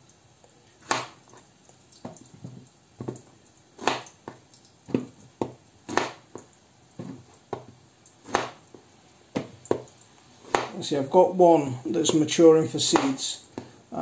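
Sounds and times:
knife chopping on plastic cutting board: 0.8 - 1.3, 2.0 - 10.8, 12.8 - 13.7.

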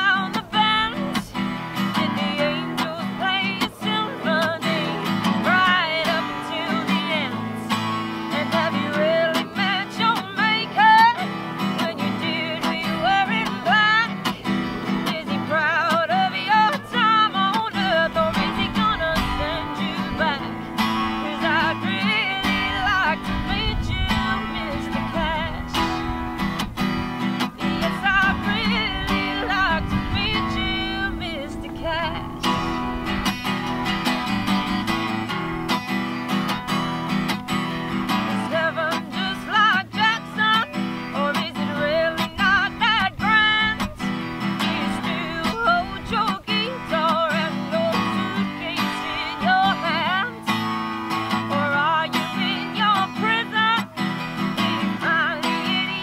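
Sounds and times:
acoustic guitar strumming: 0.0 - 56.0
woman singing country song: 0.0 - 56.0.

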